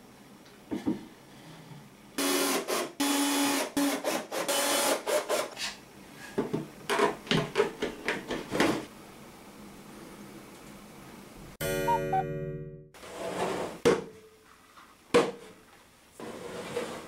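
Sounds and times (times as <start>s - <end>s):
drill driving screws: 2.2s - 5.5s.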